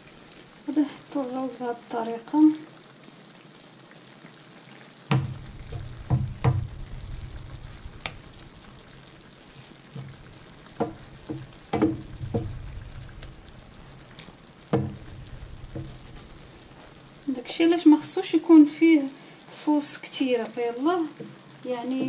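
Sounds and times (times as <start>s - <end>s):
low sizzle from pan: 0.0s - 22.0s
wooden spoon knocking on strainer: 5.1s - 6.8s, 10.0s - 13.4s, 14.7s - 16.4s.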